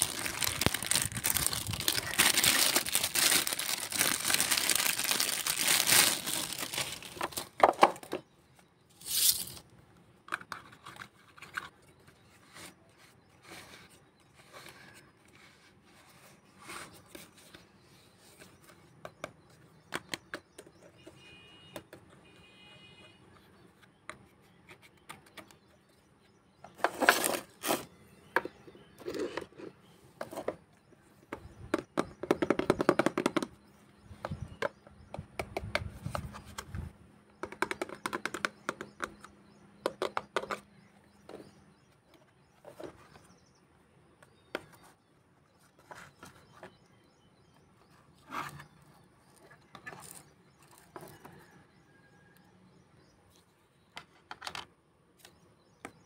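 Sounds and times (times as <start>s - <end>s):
plastic clattering and rubbing: 0.0s - 8.2s.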